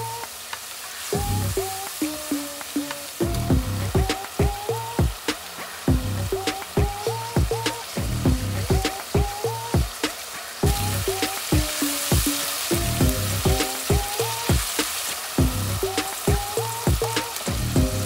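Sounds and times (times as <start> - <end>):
vegetables sizzling in oil: 0.0 - 18.0
background music: 1.0 - 18.0.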